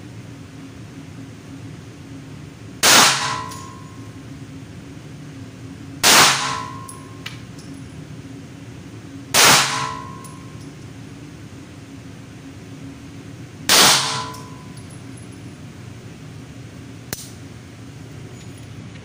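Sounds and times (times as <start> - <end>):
pistol shots: 2.8 - 3.7, 6.0 - 6.9, 9.3 - 10.3, 13.7 - 14.6.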